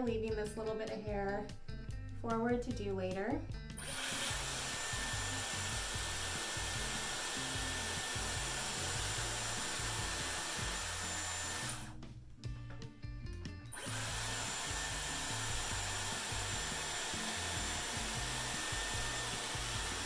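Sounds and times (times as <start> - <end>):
hair styler blowing air: 3.8 - 12.0, 13.7 - 20.0.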